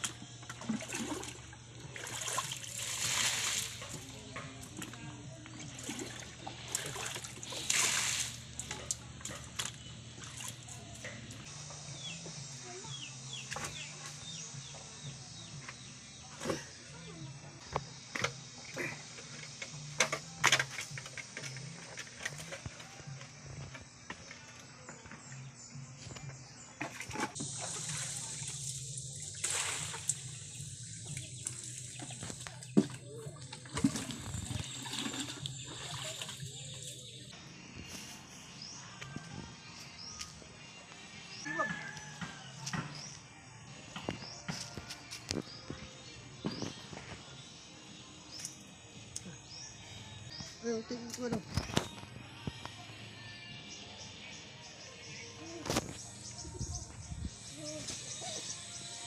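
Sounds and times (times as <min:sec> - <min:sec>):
muddy water sloshing: 0:00.0 - 0:11.4, 0:26.8 - 0:37.4
loud splash: 0:06.9 - 0:08.4, 0:29.3 - 0:30.1.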